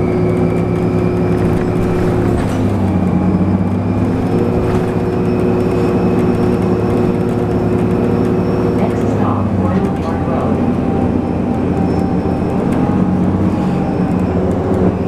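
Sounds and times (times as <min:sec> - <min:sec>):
bus drivetrain hum: 0:00.0 - 0:15.0.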